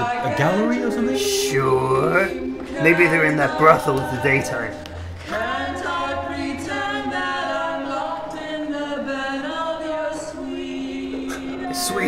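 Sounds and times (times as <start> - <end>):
voices singing together: 0.0 - 12.0.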